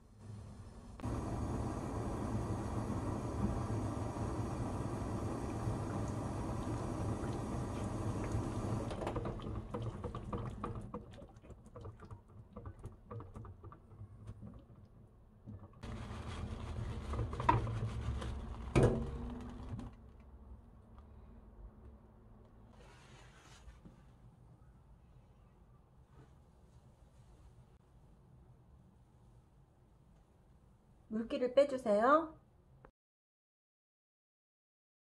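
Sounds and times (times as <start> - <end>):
water boiling in a saucepan: 0.0 - 19.9.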